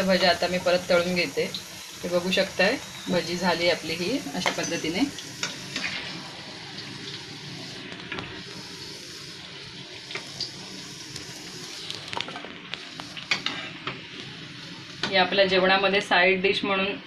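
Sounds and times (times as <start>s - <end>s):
hot oil sizzling: 0.0s - 17.0s
small pops from frying oil: 4.4s - 8.4s, 10.0s - 15.2s.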